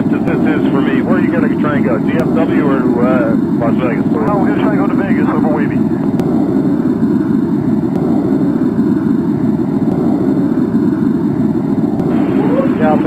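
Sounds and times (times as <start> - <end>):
muffled radio hiss: 0.0 - 6.1, 12.0 - 13.0.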